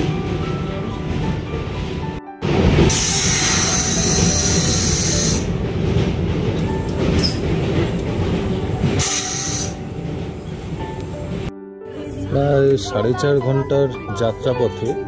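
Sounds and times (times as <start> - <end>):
train wheels rumbling on rails: 0.0 - 11.5.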